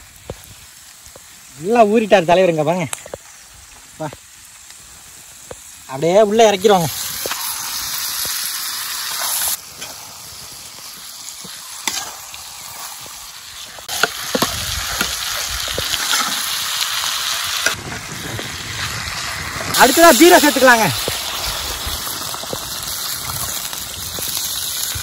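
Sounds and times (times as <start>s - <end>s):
chicken sizzling in hot oil: 0.0s - 25.0s
metal spatula scraping: 11.8s - 12.7s, 15.9s - 16.6s.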